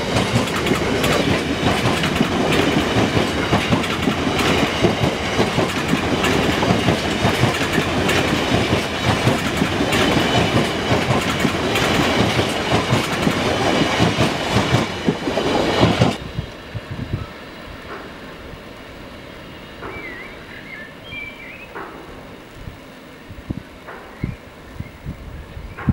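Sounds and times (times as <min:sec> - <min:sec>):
freight train wheels clacking: 0:00.0 - 0:16.7, 0:17.7 - 0:19.0, 0:19.6 - 0:20.8, 0:21.4 - 0:22.4, 0:23.8 - 0:24.3
faint train rumble: 0:00.0 - 0:25.9.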